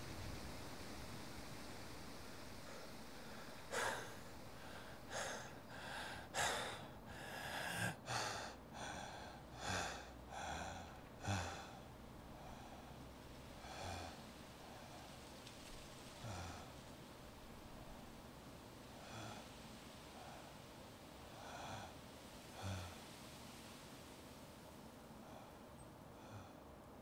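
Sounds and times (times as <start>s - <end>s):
faint steady hiss: 0.0s - 27.0s
man breathing heavily: 2.4s - 15.2s, 16.1s - 18.2s, 18.9s - 23.2s, 25.2s - 27.0s.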